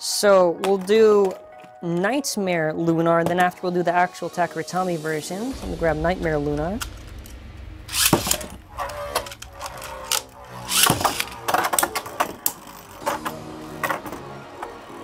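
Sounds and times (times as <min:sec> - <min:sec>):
spinning tops whirring: 0:07.9 - 0:13.0
tops clacking together: 0:08.0 - 0:14.2.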